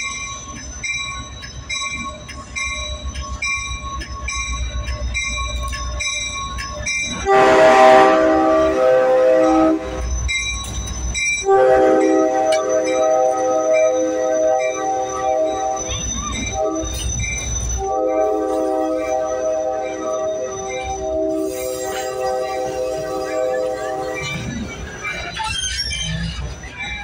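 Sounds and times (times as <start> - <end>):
locomotive bell ringing: 0.0 - 27.0
locomotive engine rumble: 0.0 - 27.0
train air horn blasts: 7.2 - 10.1, 11.4 - 17.1, 17.8 - 24.2.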